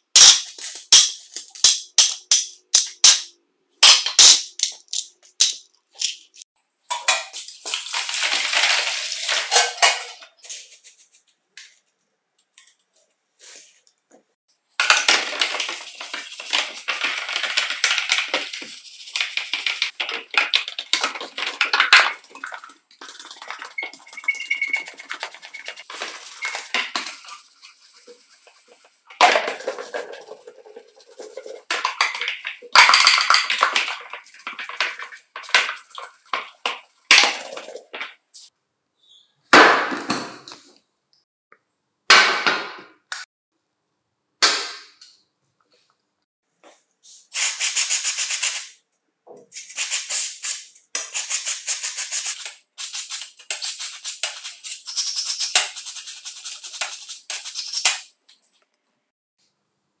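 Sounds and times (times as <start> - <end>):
brush scrubbing plastic in water: 15.2 - 32.7, 33.6 - 37.1
aerosol spray hissing: 47.3 - 48.8.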